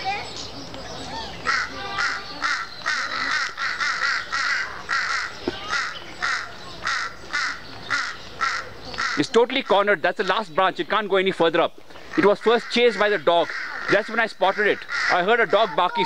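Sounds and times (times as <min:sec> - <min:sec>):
crows cawing: 0:01.2 - 0:09.8, 0:11.9 - 0:16.0.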